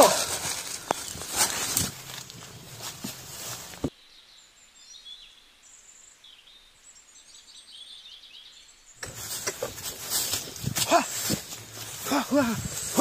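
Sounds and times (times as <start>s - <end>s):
loud rustling: 0.0s - 3.9s, 9.0s - 13.0s
small birds chirping: 0.0s - 13.0s.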